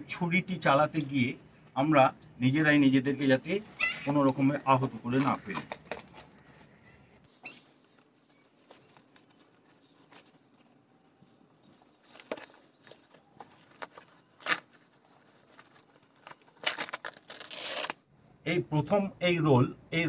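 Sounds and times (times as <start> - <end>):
paper and tape rustling: 7.6 - 18.0.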